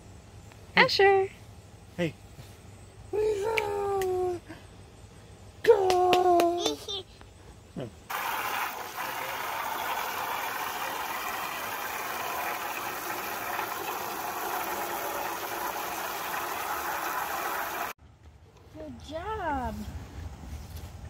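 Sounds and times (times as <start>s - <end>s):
hose water splashing into pool: 8.1s - 18.0s.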